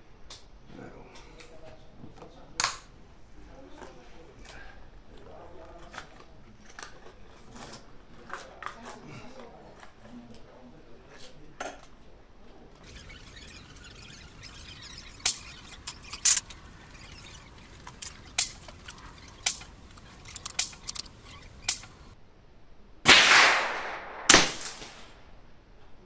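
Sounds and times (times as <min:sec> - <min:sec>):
gunshots cracking: 0:23.1 - 0:25.2
loud gunshots with echo: 0:23.1 - 0:25.2.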